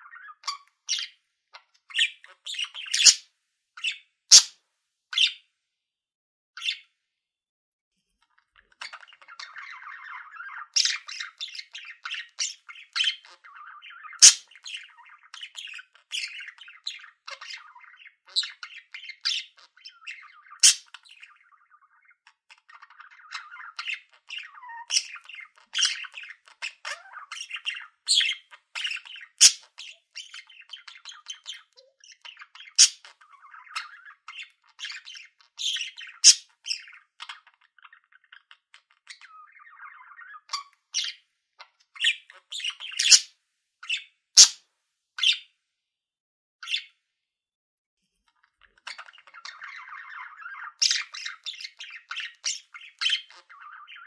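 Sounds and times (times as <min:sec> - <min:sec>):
budgerigars chattering: 0:00.0 - 0:01.1, 0:01.9 - 0:03.2, 0:03.8 - 0:04.5, 0:08.6 - 0:41.2, 0:41.9 - 0:44.6, 0:48.6 - 0:54.0
bird chirps and squawks: 0:00.0 - 0:05.4, 0:06.6 - 0:06.9, 0:08.2 - 0:44.6, 0:45.2 - 0:45.5, 0:46.6 - 0:46.9, 0:48.3 - 0:54.0.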